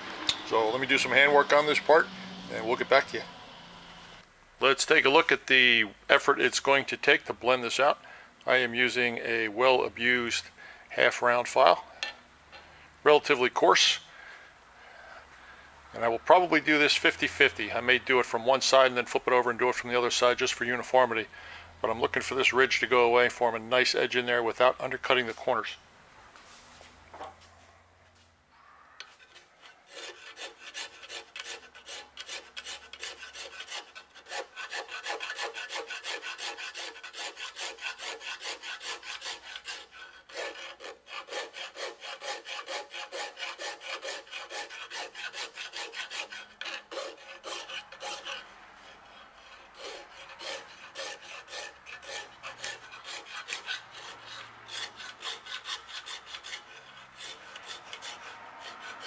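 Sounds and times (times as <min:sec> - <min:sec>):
hand file rasping on metal: 0:00.5 - 0:03.3, 0:16.8 - 0:17.6, 0:29.0 - 0:59.0.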